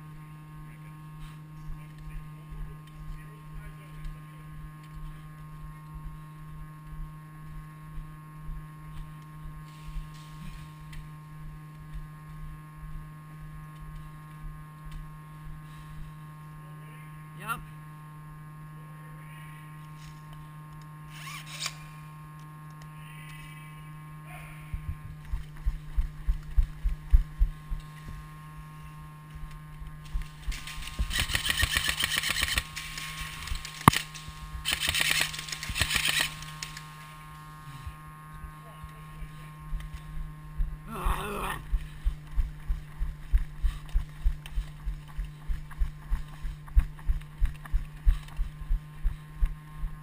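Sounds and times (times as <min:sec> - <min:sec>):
low electrical hum: 0:00.0 - 0:50.0
running footsteps thumping: 0:24.7 - 0:28.2, 0:40.6 - 0:49.6
sharp click: 0:30.6 - 0:32.8, 0:33.6 - 0:36.8.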